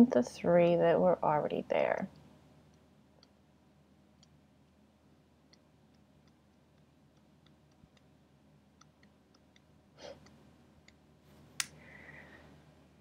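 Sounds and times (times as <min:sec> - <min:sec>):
soft breath: 0:11.7 - 0:12.8.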